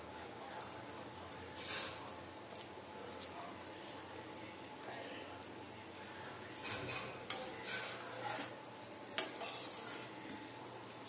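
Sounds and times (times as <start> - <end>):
metal spatula scraping in pan: 6.6 - 10.2.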